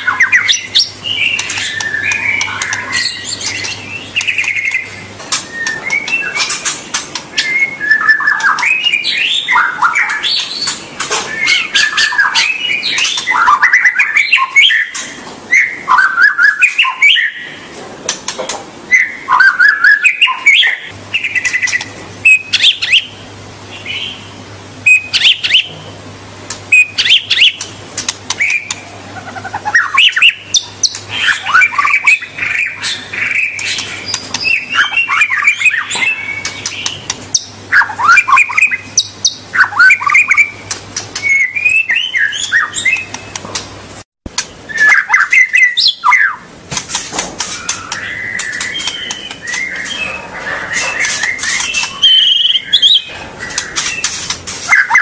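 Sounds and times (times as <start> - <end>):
songbird singing whistled phrases: 0.0 - 6.7, 7.3 - 17.5, 18.9 - 23.2, 24.8 - 25.8, 26.7 - 27.7, 28.3 - 43.4, 44.7 - 46.5, 47.6 - 54.1, 54.7 - 55.0.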